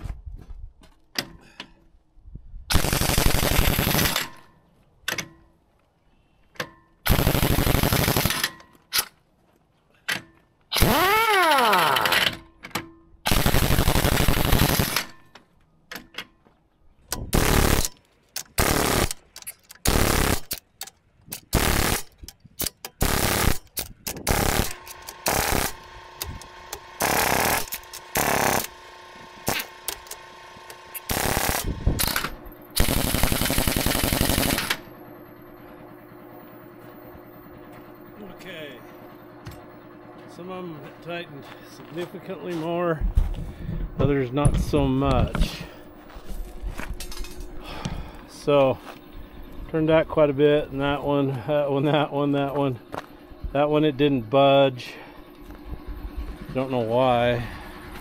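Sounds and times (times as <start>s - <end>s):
pneumatic impact wrench bursts: 2.7s - 4.4s, 7.0s - 8.6s, 10.7s - 12.4s, 13.3s - 15.3s, 17.2s - 20.7s, 21.3s - 34.9s.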